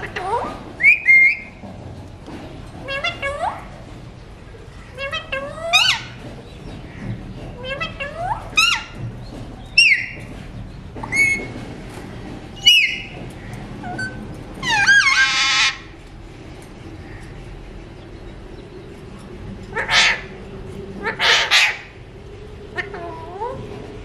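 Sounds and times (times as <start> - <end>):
parakeet calling: 4.8 - 9.0, 12.6 - 13.2, 13.8 - 15.9, 19.7 - 20.4, 21.0 - 22.0
parakeet squawk: 13.8 - 15.9, 19.8 - 20.3, 21.0 - 21.9.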